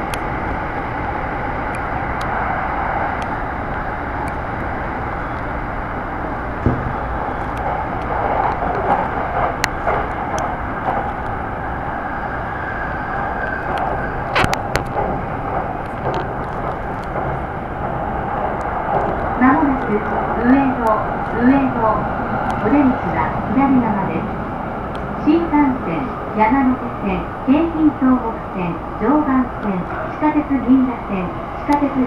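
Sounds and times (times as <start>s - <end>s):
train wheels on rails: 0.0s - 32.0s
sharp clicks and knocks: 6.6s - 11.3s, 13.7s - 17.4s.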